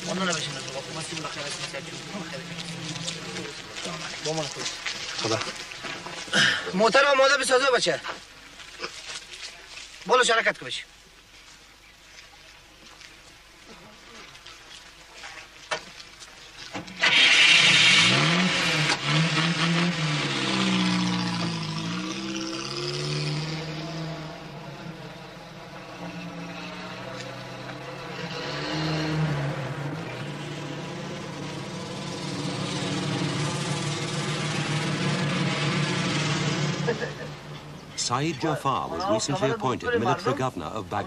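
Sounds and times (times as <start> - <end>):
heavy truck engine revving: 17.0 - 38.0.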